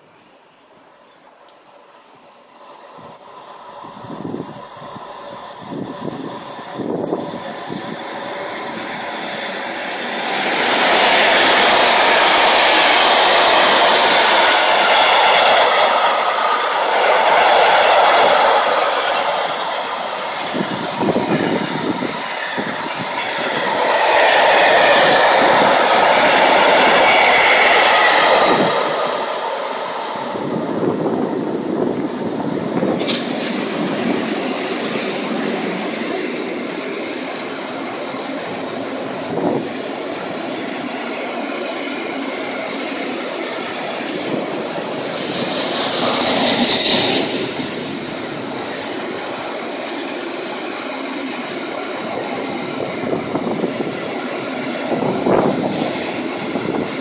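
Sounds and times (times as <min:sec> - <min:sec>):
freight train wheels rushing: 0:00.0 - 0:57.0
high wheel squeal: 0:42.4 - 0:50.3.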